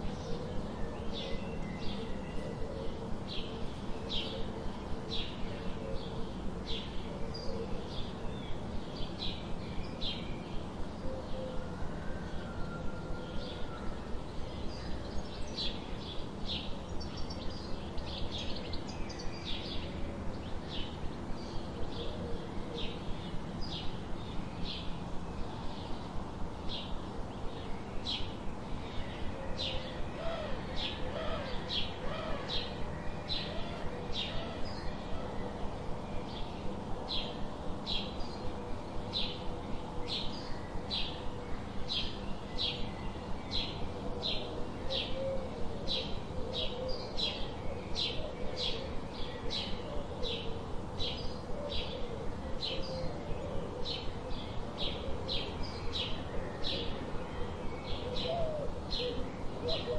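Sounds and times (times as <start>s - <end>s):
steady background hiss: 0.0s - 59.9s
dove cooing: 2.0s - 4.7s, 44.0s - 47.4s, 56.4s - 59.9s.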